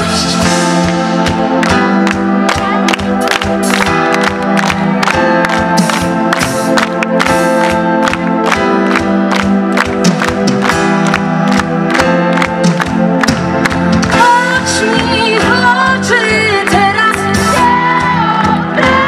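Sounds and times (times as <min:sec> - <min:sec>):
steady drum beat: 0:00.0 - 0:15.2
concert crowd noise: 0:00.0 - 0:19.0
keyboard chords: 0:00.0 - 0:19.0.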